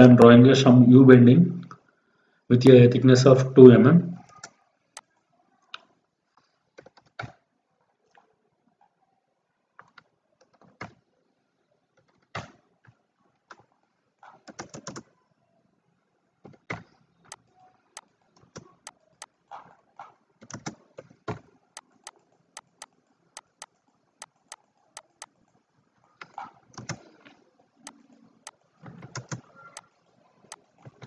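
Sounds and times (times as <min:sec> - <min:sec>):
computer keyboard keys clicking: 0:14.4 - 0:15.1, 0:20.4 - 0:21.1, 0:21.8 - 0:25.4, 0:26.2 - 0:27.1, 0:29.0 - 0:29.9
mouse buttons clicking: 0:21.8 - 0:25.3.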